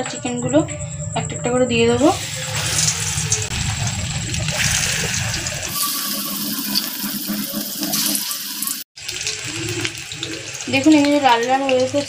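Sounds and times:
low rumble: 0.0 - 7.4
food deep-frying in oil: 2.2 - 12.0.

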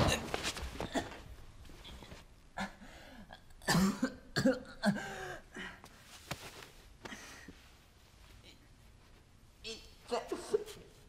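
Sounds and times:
man coughing and groaning: 2.6 - 5.3.

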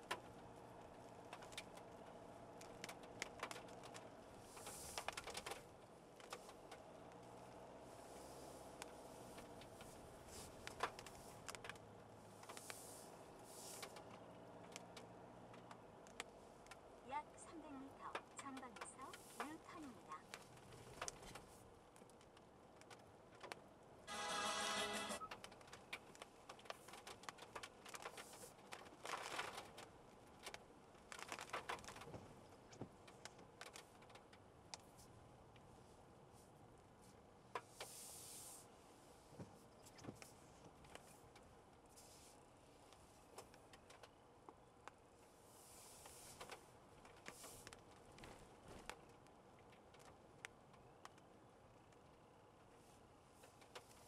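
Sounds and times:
rain ticking on car: 0.0 - 24.0, 25.2 - 34.5
low engine and road hum: 0.0 - 54.0
electronic chime: 24.1 - 25.3.

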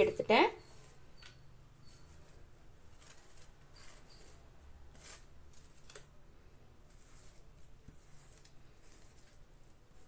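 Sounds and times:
beetroot grating on metal grater: 1.8 - 6.0.

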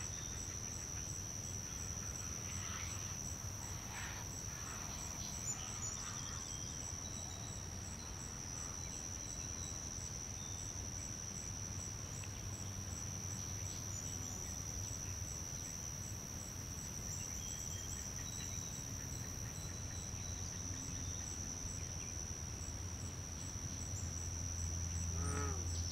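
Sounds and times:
high-pitched insect drone: 23.6 - 25.9.

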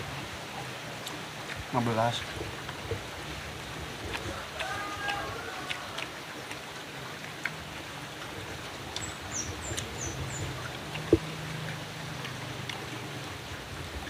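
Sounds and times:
small bird chirping: 9.0 - 10.6.

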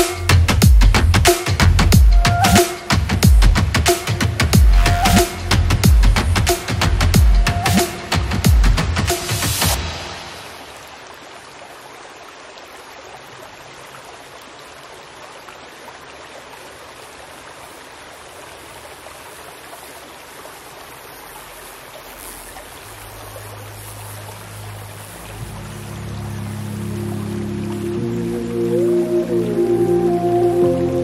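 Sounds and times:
running water rushing: 0.0 - 31.0
low musical note: 25.4 - 31.0.

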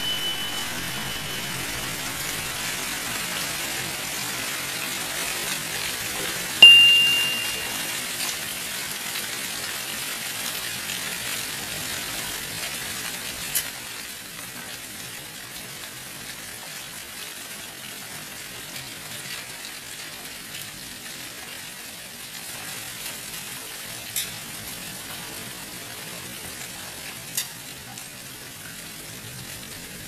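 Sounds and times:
loud ringing strike: 0.0 - 4.0, 6.6 - 7.9
hail and rain falling: 0.0 - 6.6, 7.3 - 30.0.

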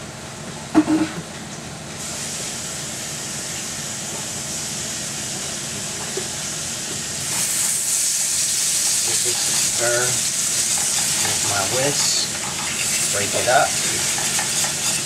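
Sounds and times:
drippings sizzling in a skillet: 2.0 - 15.0
whisk working flour: 9.0 - 15.0.

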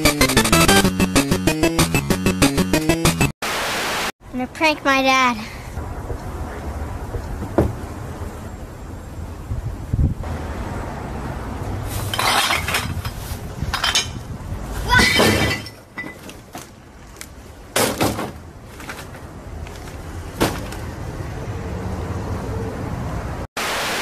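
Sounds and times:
wind rumble on microphone: 9.3 - 10.3, 12.8 - 14.8
sudden crashes and knocks: 17.8 - 18.4, 20.4 - 20.8.

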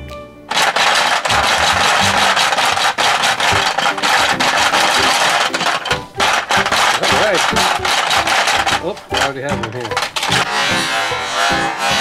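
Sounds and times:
plastic game clattering: 0.5 - 12.0.

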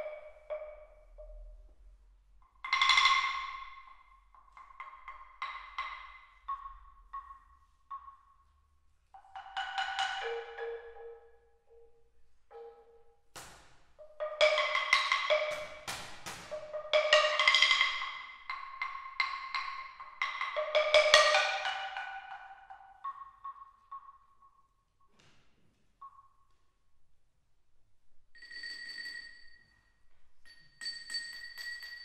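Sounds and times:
held ringing tones: 28.4 - 32.0.

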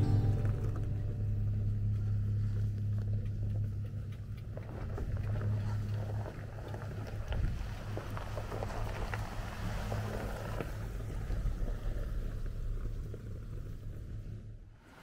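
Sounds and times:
engine low drone: 0.0 - 14.9.

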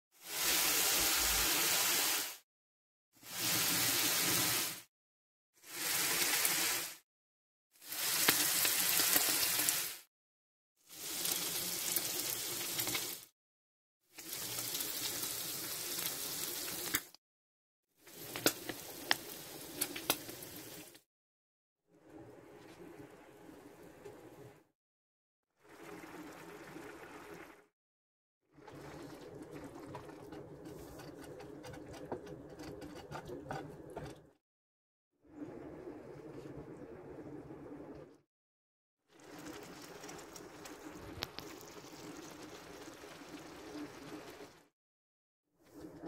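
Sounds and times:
food sizzling in oil: 0.2 - 2.4, 5.6 - 7.0, 7.8 - 10.1, 10.9 - 13.3, 14.1 - 17.2, 18.0 - 21.0.

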